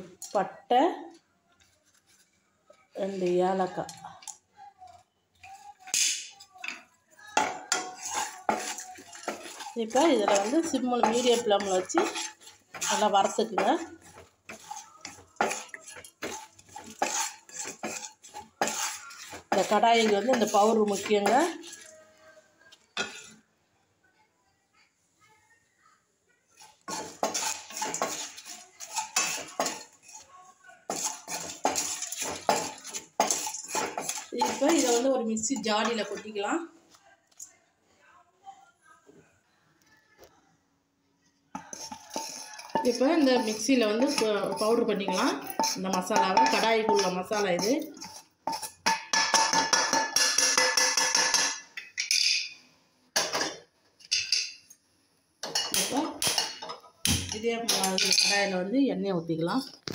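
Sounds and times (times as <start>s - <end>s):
wooden spatula scraping a pan: 1.5s - 4.0s, 7.3s - 22.2s, 26.5s - 36.6s, 41.5s - 51.4s.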